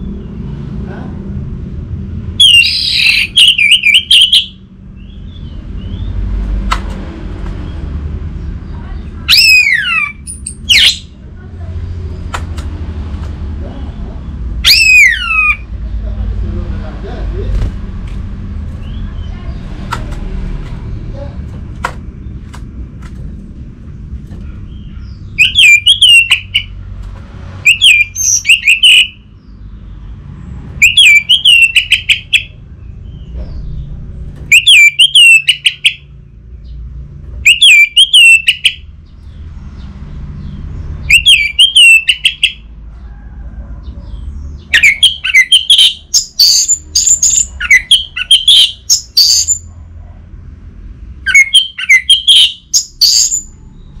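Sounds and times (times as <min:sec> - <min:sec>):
thrush singing whistled phrases: 0:02.4 - 0:04.6, 0:09.3 - 0:11.1, 0:14.6 - 0:15.6, 0:25.4 - 0:26.7, 0:27.6 - 0:29.2, 0:30.8 - 0:32.5, 0:34.5 - 0:36.1, 0:37.4 - 0:38.8, 0:41.0 - 0:42.7, 0:44.7 - 0:49.6, 0:51.2 - 0:53.5.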